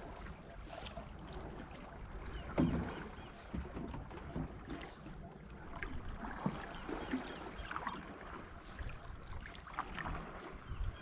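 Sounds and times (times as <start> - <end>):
water lapping and sloshing: 0.0 - 11.0
wind rumble on microphone: 5.6 - 11.0.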